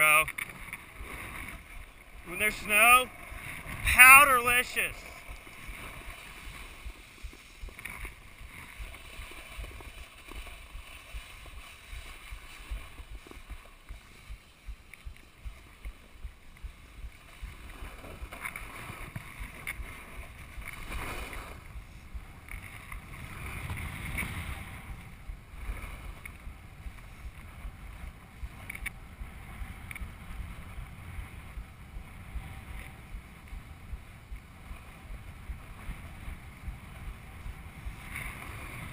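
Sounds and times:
snowboard scraping over snow: 0.0s - 14.6s, 34.0s - 38.9s
wind on microphone: 0.0s - 38.9s.

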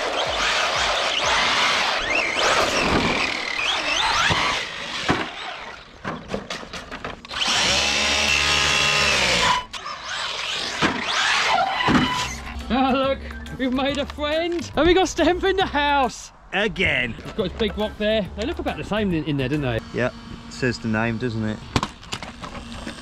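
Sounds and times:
electric motor whining: 0.0s - 6.0s, 7.2s - 12.6s, 19.4s - 23.0s.

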